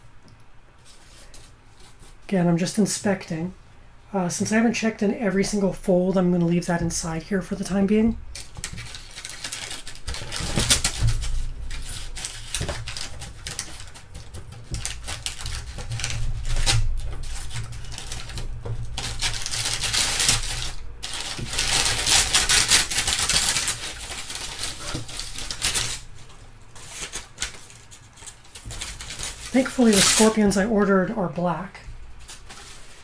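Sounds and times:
packing paper rustling: 6.2 - 31.2, 31.8 - 33.0.

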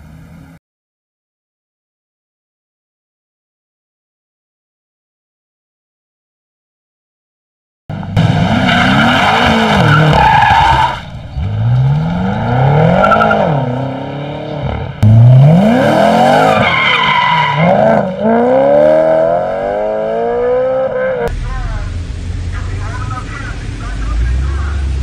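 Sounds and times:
car engines revving: 7.9 - 25.0
tyre squeal: 8.7 - 11.8, 16.2 - 18.1.

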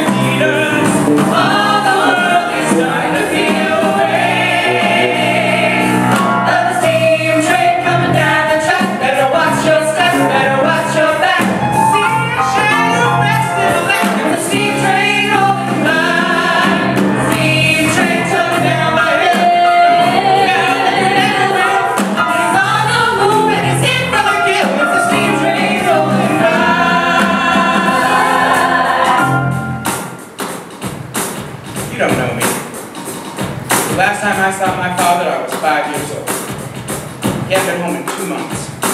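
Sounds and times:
lead singer: 0.0 - 30.1
backing singers: 0.0 - 30.2
piano: 0.0 - 38.9.

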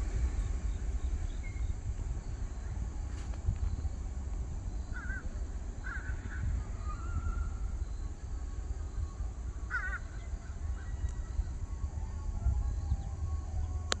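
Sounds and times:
steady low rumble: 0.0 - 14.0
bird call: 4.7 - 14.0.

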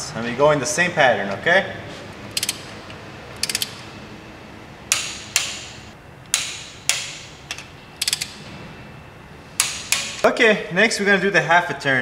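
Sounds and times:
ratchet wrench clicks: 2.3 - 2.6, 3.4 - 3.8, 6.3 - 8.4
sharp metallic clicks: 2.3 - 2.7, 3.3 - 3.8, 4.9 - 8.4, 9.6 - 10.3.

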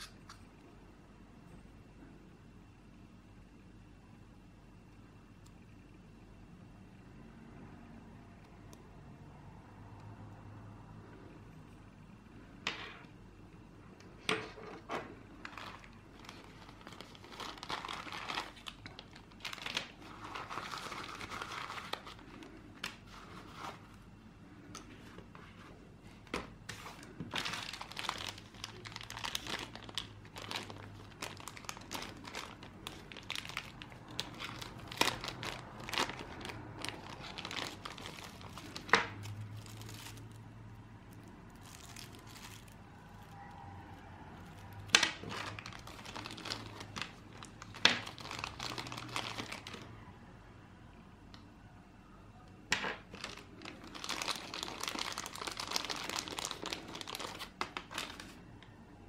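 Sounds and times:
plastic bags crinkling: 14.6 - 24.0, 26.3 - 40.5, 41.1 - 50.0, 52.7 - 58.4.

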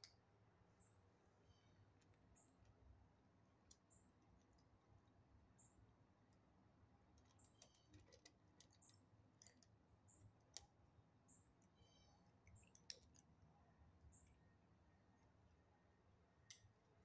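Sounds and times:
kittens chewing dry kibble: 6.0 - 10.7, 11.5 - 13.5.

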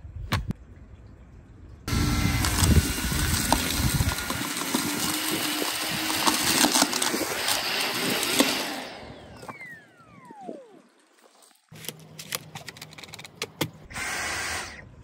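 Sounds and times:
vacuum cleaner motor whine: 1.9 - 11.0
grit clicking up vacuum wand: 2.3 - 8.8.

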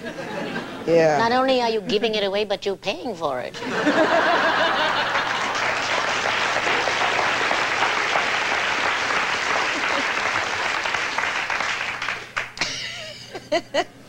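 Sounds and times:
audience applauding: 4.5 - 12.8.

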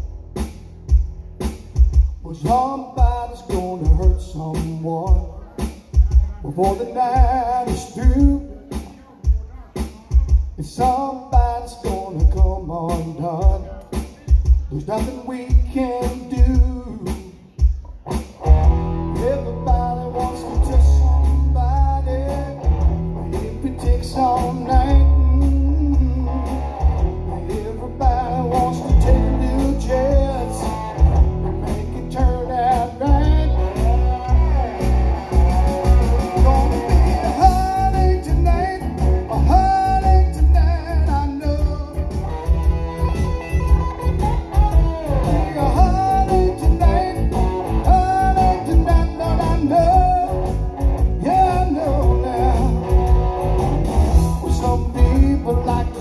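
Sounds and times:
deep bass line: 0.0 - 2.4, 18.4 - 56.0
guitar: 0.0 - 56.0
man singing: 2.2 - 53.6, 54.2 - 56.0.

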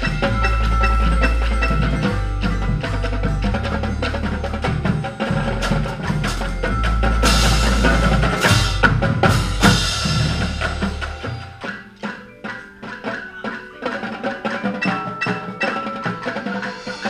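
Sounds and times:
bass drums: 0.0 - 11.7
cymbals crashing: 0.0 - 17.0
pitched percussion: 0.0 - 17.0
snare and tenor drums: 0.0 - 17.0.

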